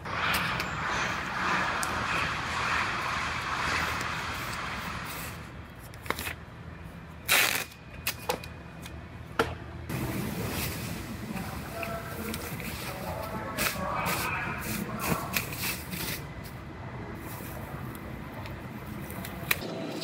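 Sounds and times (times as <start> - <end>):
masking tape ripping: 7.3 - 7.8.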